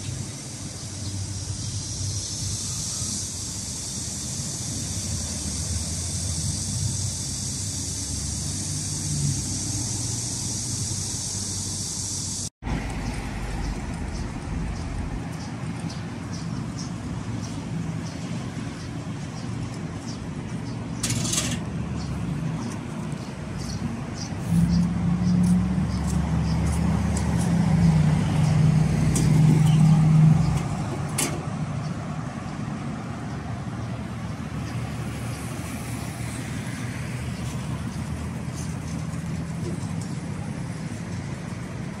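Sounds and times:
road traffic: 0.0s - 42.0s
vehicle engine passing close: 3.8s - 16.0s, 21.0s - 42.0s.

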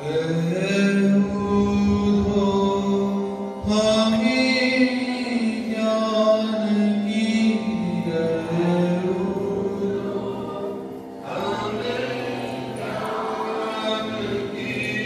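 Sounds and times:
voices singing devotional song: 0.0s - 15.0s.

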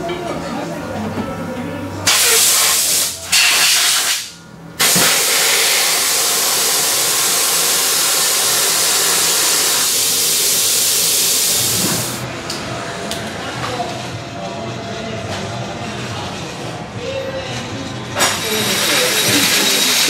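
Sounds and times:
compressed air hissing: 2.1s - 12.2s, 18.2s - 20.0s.

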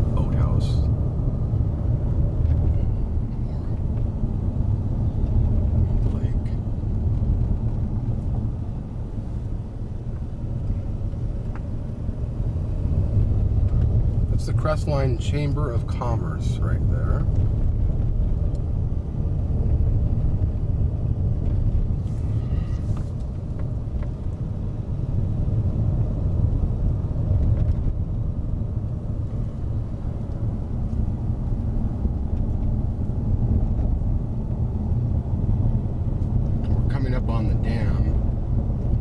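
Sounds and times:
car engine and tyre rumble: 0.0s - 39.0s.

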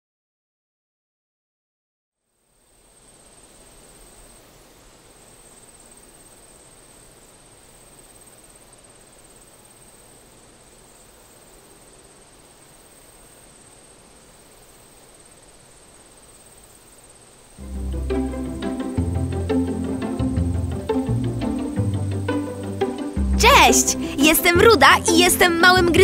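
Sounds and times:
soft even hiss: 2.2s - 25.9s
high-pitched insect trill: 2.4s - 23.3s.

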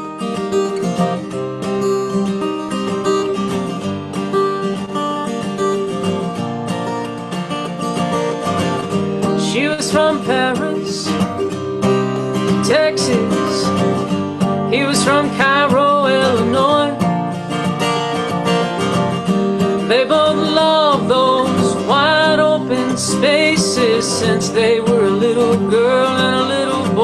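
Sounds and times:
acoustic guitar chords: 0.0s - 27.0s
woman singing: 9.2s - 17.4s, 19.6s - 27.0s.

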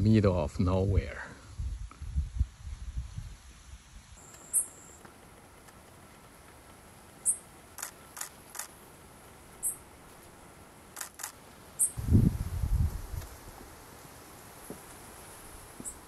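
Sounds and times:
faint steady hiss: 0.0s - 16.0s
songbird high thin call notes: 4.2s - 5.0s.

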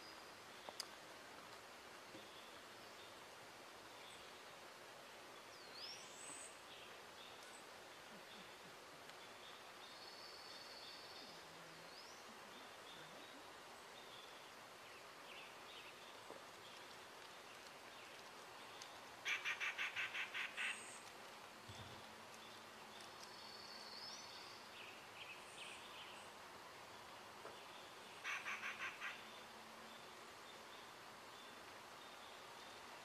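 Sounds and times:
small birds calling: 5.4s - 26.4s, 27.4s - 32.9s.

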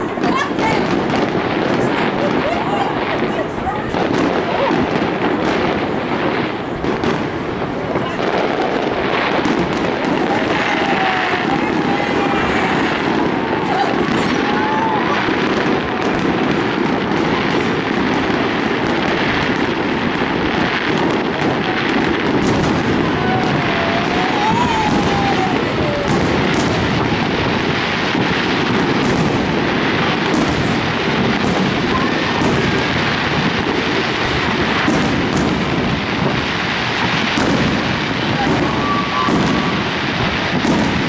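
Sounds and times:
firework crackling: 0.0s - 41.0s
firework shells bursting: 0.0s - 41.0s
firework whistle: 8.4s - 41.0s.

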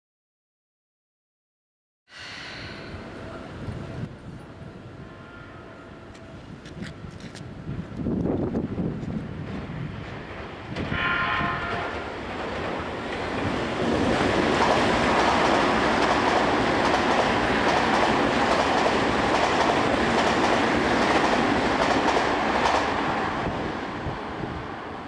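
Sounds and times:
train wheel and rail noise: 2.1s - 25.0s
train horn blast: 4.8s - 6.4s, 10.9s - 12.2s
clickety-clack over points: 14.5s - 23.0s.

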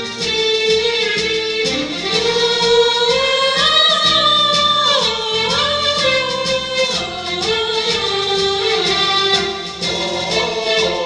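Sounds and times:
lead voice holding sliding notes: 0.0s - 11.0s
vocal ensemble singing: 0.0s - 11.0s.

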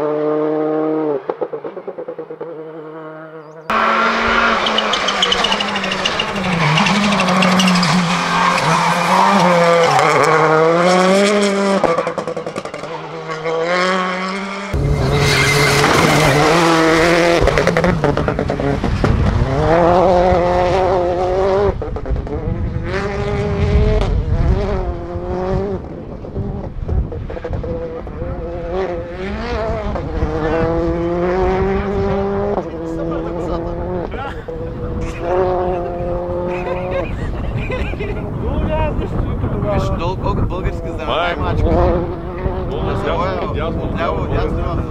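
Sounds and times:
rally car engines revving: 0.0s - 44.9s.

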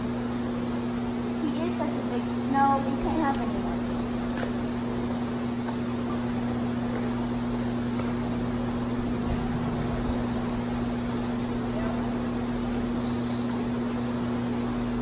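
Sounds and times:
steady mechanical hum: 0.0s - 15.0s.

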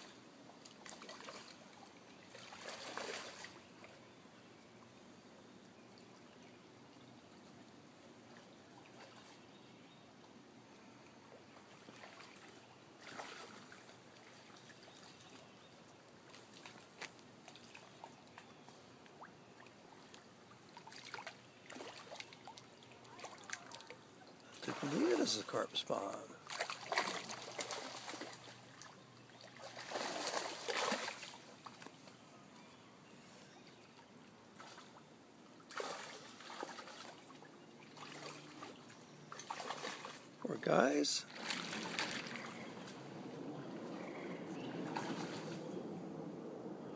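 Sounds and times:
shallow water trickling and splashing: 0.0s - 46.0s
fish splashing in water: 0.8s - 1.6s, 2.3s - 3.6s, 11.6s - 14.6s, 20.7s - 24.0s, 26.4s - 31.8s, 35.7s - 40.3s, 41.3s - 43.0s, 44.0s - 45.6s
loud splash: 35.7s - 37.1s, 44.8s - 45.6s.

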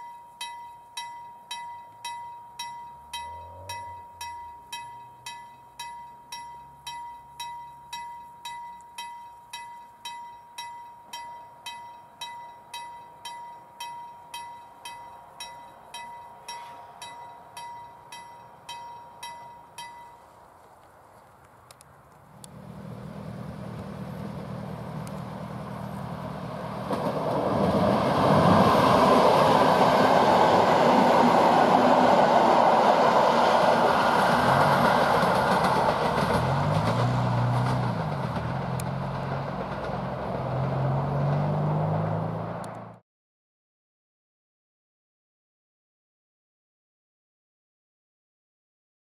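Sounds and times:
electric train passing: 0.0s - 20.7s, 22.3s - 42.9s
wheel and rail noise: 0.0s - 43.0s
wavering humming tone: 1.8s - 20.3s.

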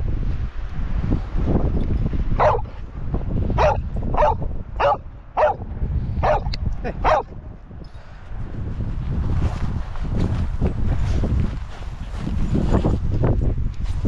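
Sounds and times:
wind rumbling on microphone: 0.0s - 14.0s
dog barking: 2.4s - 2.8s, 3.6s - 5.6s, 6.2s - 7.3s.

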